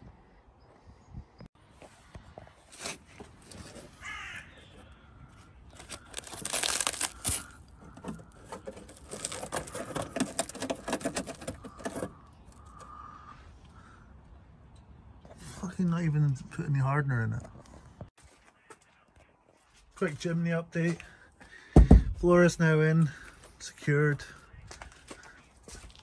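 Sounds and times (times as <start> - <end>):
filler crackling and tearing: 5.7 - 12.8.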